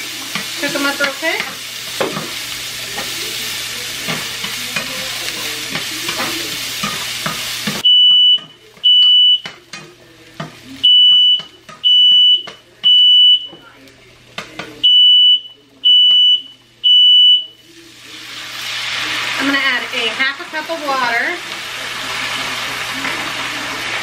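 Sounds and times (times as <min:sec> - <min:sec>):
onions sizzling in a pan: 0:00.0 - 0:24.0
smoke alarm beeping: 0:07.8 - 0:09.5, 0:10.8 - 0:13.6, 0:14.8 - 0:17.6.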